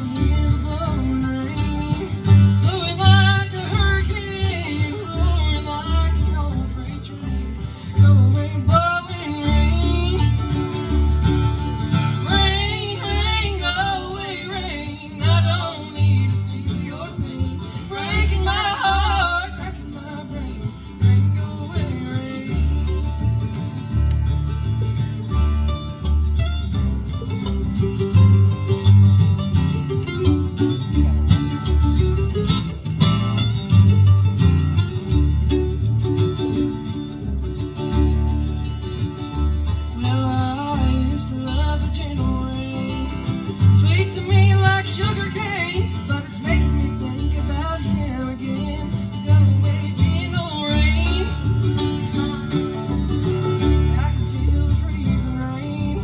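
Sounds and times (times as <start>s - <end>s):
acoustic guitars: 0.0s - 56.0s
banjo: 0.0s - 56.0s
mandolin: 0.0s - 56.0s
upright bass: 0.0s - 56.0s
people singing: 12.3s - 22.8s.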